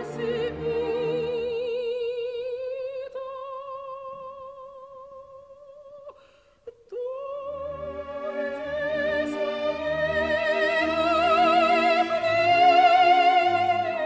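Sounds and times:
orchestra playing: 0.0s - 2.1s, 7.4s - 14.0s
operatic soprano singing: 0.0s - 14.0s.

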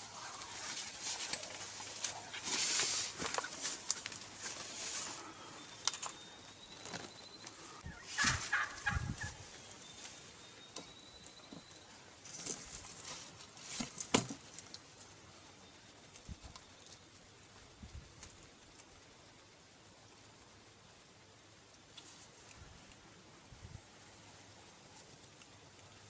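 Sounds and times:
wild turkey gobbling: 0.1s - 2.5s, 7.6s - 9.4s.

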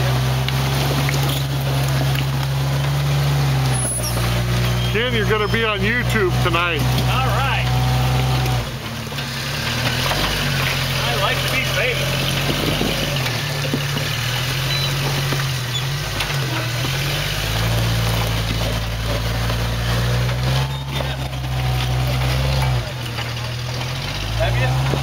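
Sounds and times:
car engine revving at crawling speed: 0.0s - 25.0s.

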